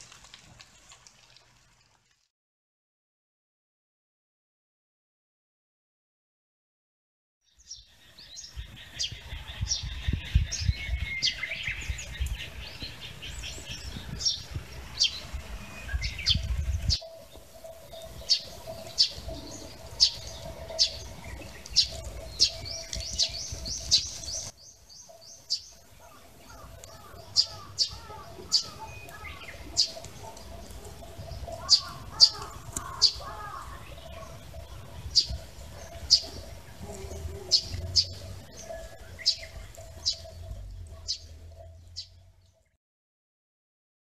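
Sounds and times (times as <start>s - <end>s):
small birds chirping: 7.4s - 42.8s
low rumble: 36.3s - 42.6s.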